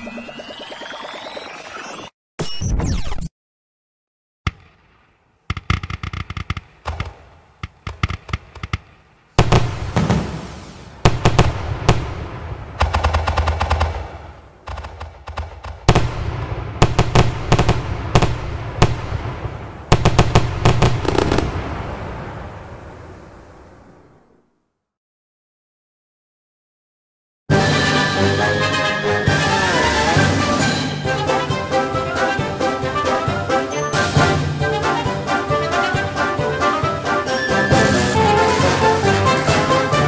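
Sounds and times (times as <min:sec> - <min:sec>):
fireworks crackling bangs: 0:04.5 - 0:23.0
fireworks booms with low rumble: 0:04.5 - 0:23.8.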